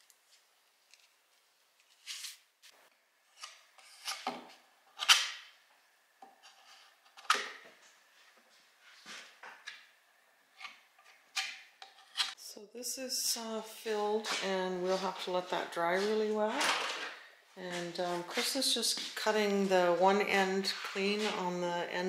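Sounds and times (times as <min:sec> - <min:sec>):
small knife scraping: 0:11.8 - 0:12.4.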